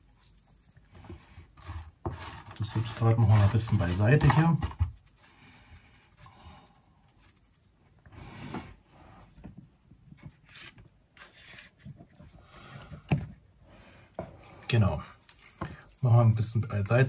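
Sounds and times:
soil rustling and crackling: 15.3 - 17.0.

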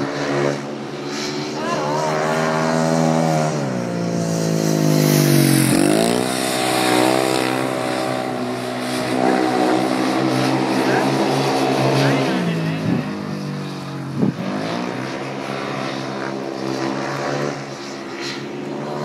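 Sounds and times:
motorcycle engine running hard: 0.0 - 19.0.

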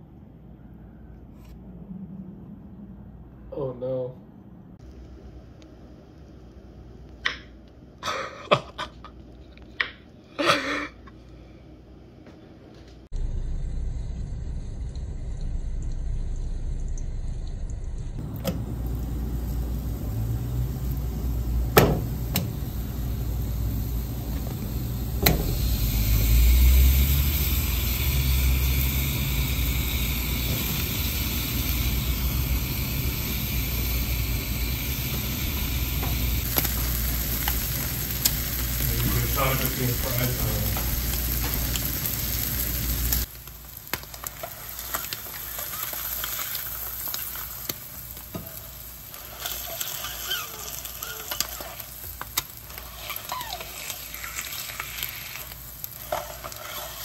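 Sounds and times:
low rumble: 0.5 - 3.5, 13.1 - 39.3
meat sizzling in a pan: 18.2 - 57.0.

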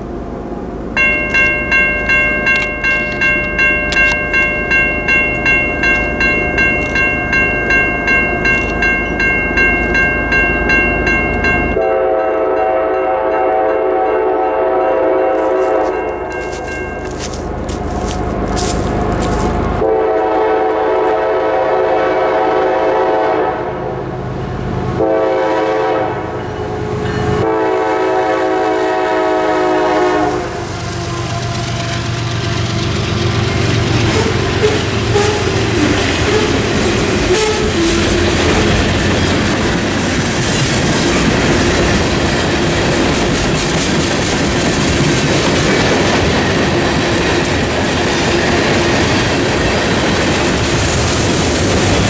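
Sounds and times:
train wheels clattering on rails: 1.0 - 11.8, 30.7 - 52.0
train horn blasts: 11.7 - 18.8, 19.7 - 23.9, 25.0 - 39.0.

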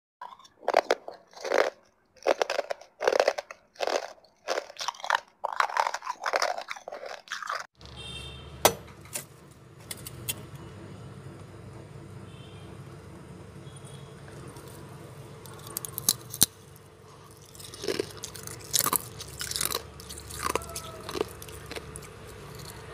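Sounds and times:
frost crunching while chewed: 0.2 - 7.7, 14.3 - 22.9
steady low hum: 8.0 - 22.9.

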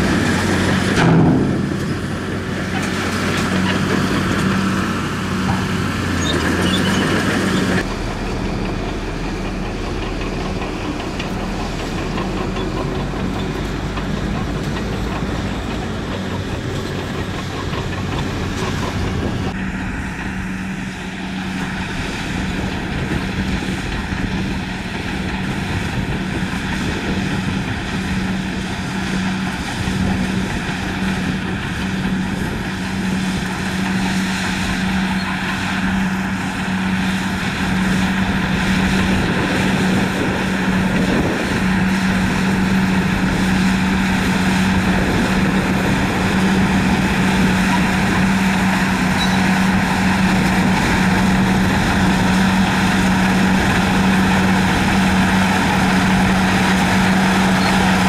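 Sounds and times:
bulldozer diesel engine droning: 0.0 - 58.0
dump truck diesel engine: 0.0 - 58.0.

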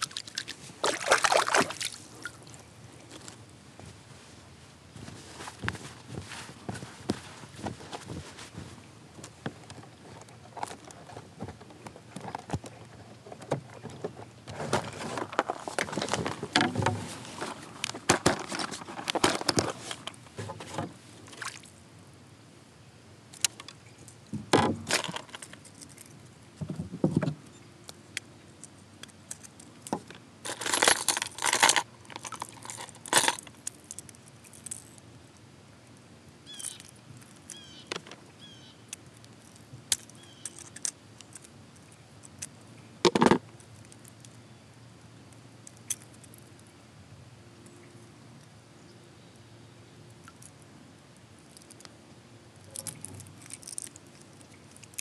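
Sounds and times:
plastic tackle box rummaging: 9.8 - 21.0, 24.5 - 25.6, 29.9 - 33.5.

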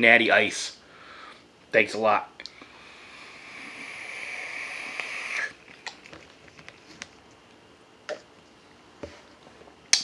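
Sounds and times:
vape draw hissing: 2.8 - 5.6.

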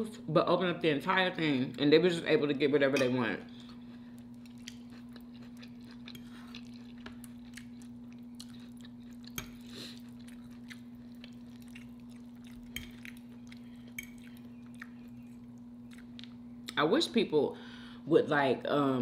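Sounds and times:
person chewing food: 3.5 - 16.7.

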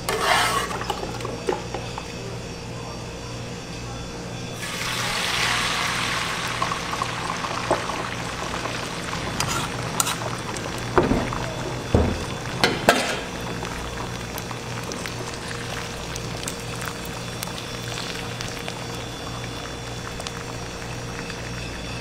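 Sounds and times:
egg sizzling in hot oil: 4.6 - 22.0.

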